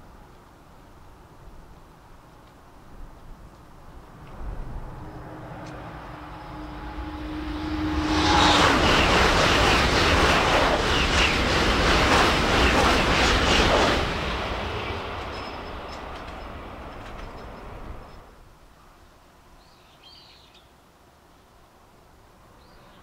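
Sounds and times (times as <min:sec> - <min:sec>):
high-speed train passing: 0:03.4 - 0:18.5.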